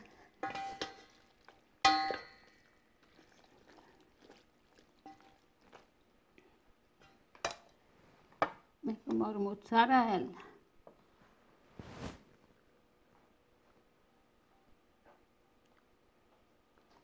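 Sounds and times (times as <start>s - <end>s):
spoon knocking against pot: 0.4s - 1.1s, 1.9s - 2.5s.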